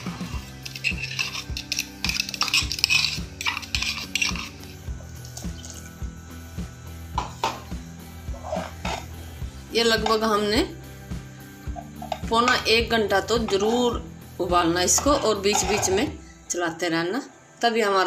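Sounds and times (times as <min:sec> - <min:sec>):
steel spoon scraping pot: 0:00.0 - 0:06.0, 0:08.3 - 0:10.5, 0:11.7 - 0:14.0, 0:14.8 - 0:16.3
background music with steady beat: 0:00.0 - 0:18.0.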